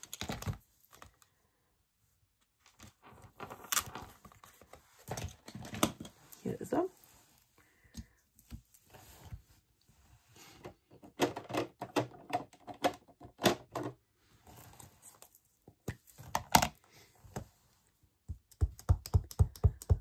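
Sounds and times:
clicks and taps of crafting tools: 18.2s - 20.0s.

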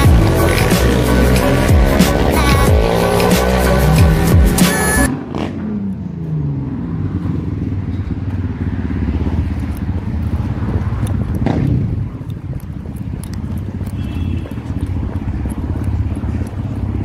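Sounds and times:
music: 0.0s - 5.1s
vehicle engine rumble: 0.0s - 17.0s.

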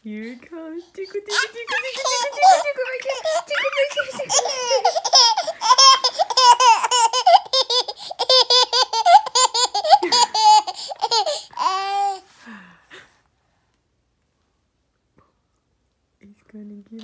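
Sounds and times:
baby laughing: 1.1s - 12.3s.

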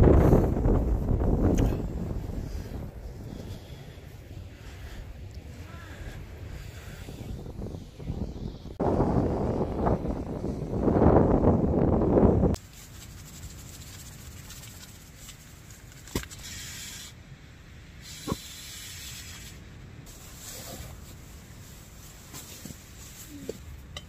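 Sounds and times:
wind buffeting microphone: 0.0s - 12.6s.

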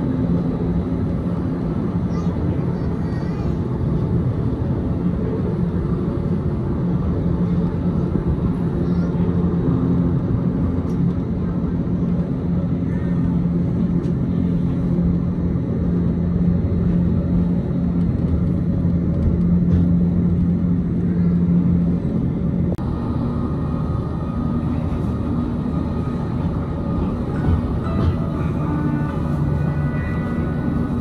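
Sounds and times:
train motor hum: 0.0s - 31.0s
train rumble: 0.0s - 31.0s
high thin motor whine: 22.9s - 31.0s.

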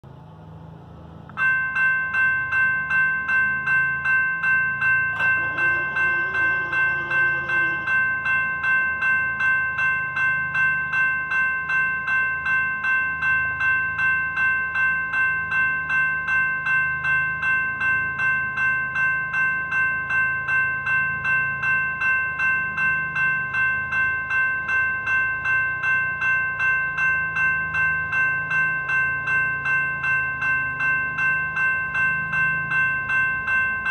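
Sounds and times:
railroad crossing bell ringing: 0.1s - 33.9s
crossing gates whirring: 4.8s - 8.8s.

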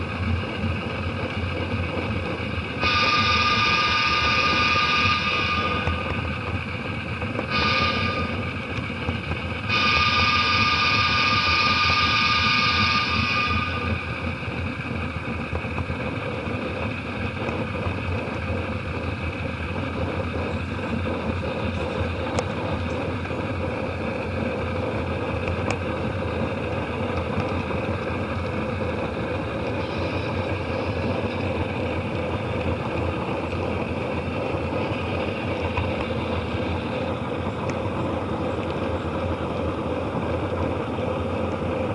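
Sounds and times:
model train rolling rumble: 0.0s - 41.9s
train horn: 2.8s - 6.6s, 7.4s - 8.6s, 9.7s - 14.3s.

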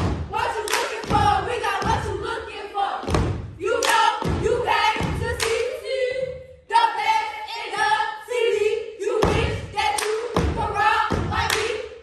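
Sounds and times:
heavy thuds keeping the beat: 0.0s - 6.5s, 9.1s - 11.8s
girls chanting a cheer: 0.0s - 12.0s.

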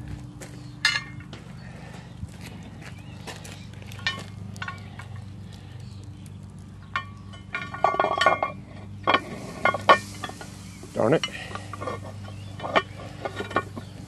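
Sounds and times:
metal lid clanking and scraping: 6.8s - 14.0s.

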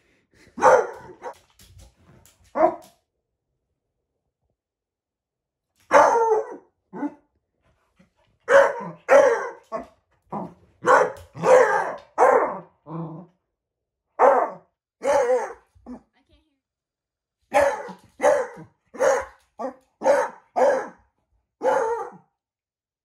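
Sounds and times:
dog barking: 0.6s - 1.4s, 5.9s - 7.2s, 8.4s - 12.7s, 14.2s - 16.0s, 17.5s - 22.3s.

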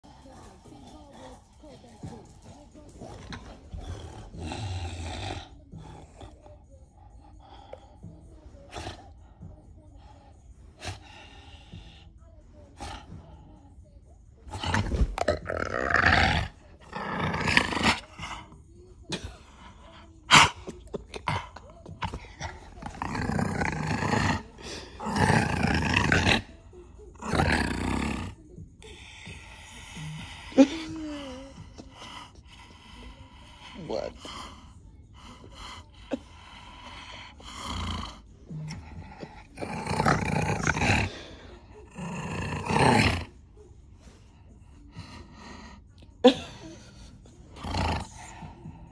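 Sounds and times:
puppy growling: 0.1s - 6.4s, 14.5s - 26.5s, 27.2s - 28.4s, 35.2s - 43.4s, 46.9s - 48.9s.

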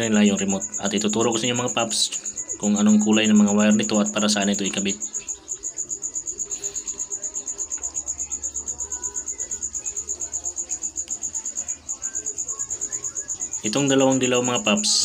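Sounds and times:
fast high insect chirping: 0.0s - 15.0s.

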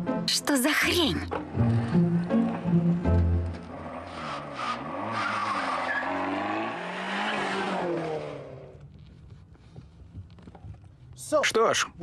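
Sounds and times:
car engine revving: 1.3s - 9.0s
tyres squealing: 3.7s - 7.8s.

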